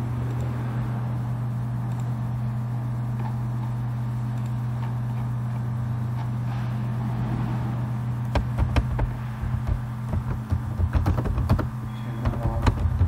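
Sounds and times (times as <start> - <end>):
low background hum: 0.0 - 13.0
computer keyboard typing: 8.3 - 13.0.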